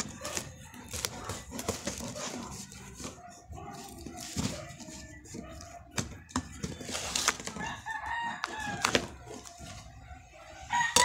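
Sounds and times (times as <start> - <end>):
cardboard box handled: 3.8 - 9.8
packing tape ripping: 6.8 - 7.6
rooster crowing: 7.5 - 11.0.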